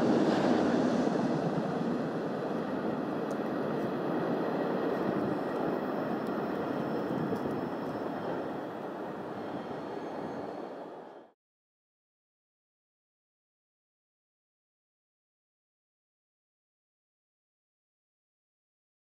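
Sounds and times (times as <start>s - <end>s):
train rumbling away: 0.0s - 11.3s.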